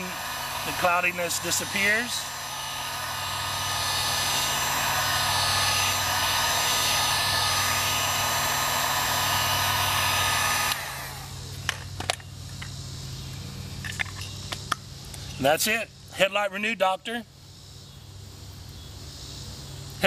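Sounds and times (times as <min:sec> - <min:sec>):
low hum: 0:00.0 - 0:11.7
heat gun blowing air: 0:00.0 - 0:11.8.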